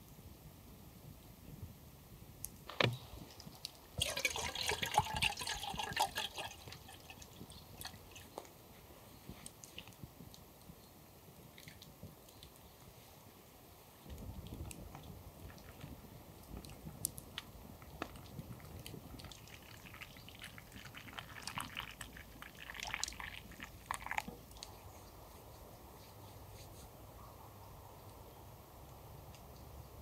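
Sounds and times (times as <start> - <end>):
water pouring into pot: 4.0 - 8.0, 19.2 - 24.2.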